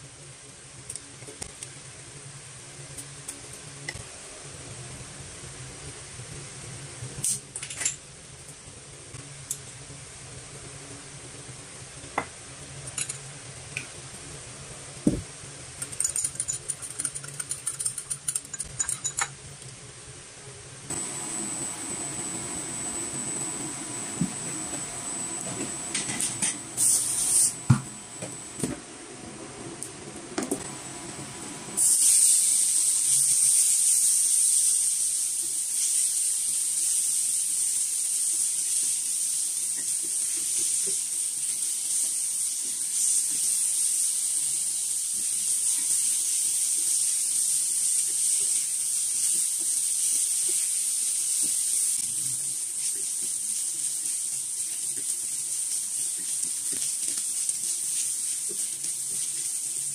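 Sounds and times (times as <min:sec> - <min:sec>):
meat sizzling in oil: 0:31.8 - 0:59.9.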